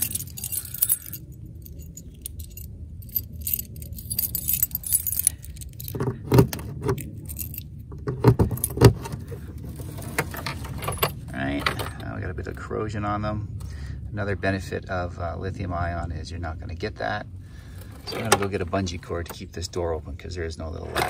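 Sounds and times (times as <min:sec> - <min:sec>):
keys jangling on a key ring: 0:00.0 - 0:06.2, 0:06.8 - 0:07.8.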